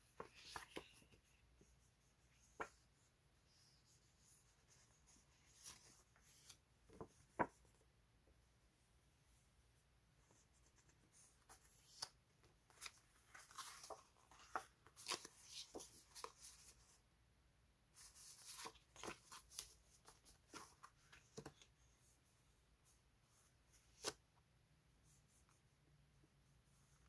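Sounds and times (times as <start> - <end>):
paper sheets rustling and sliding: 12.7 - 16.8.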